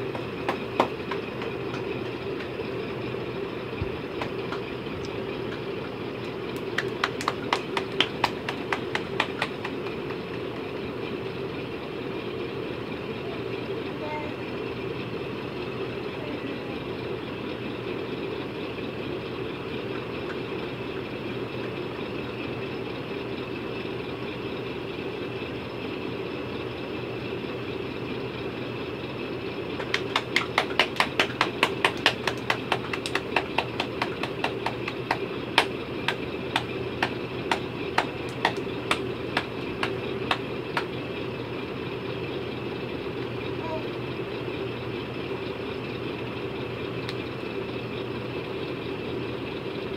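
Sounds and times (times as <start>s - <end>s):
sharp hand claps: 0.0s - 2.6s, 6.2s - 10.6s, 29.8s - 40.9s
steady background hum: 0.0s - 49.9s.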